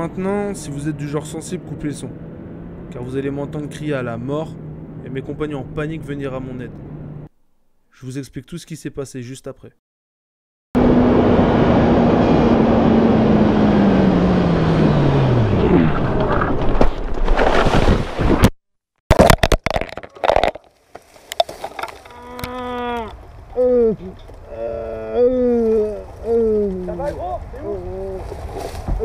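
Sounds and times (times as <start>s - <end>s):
man groaning in pain: 22.1s - 27.0s.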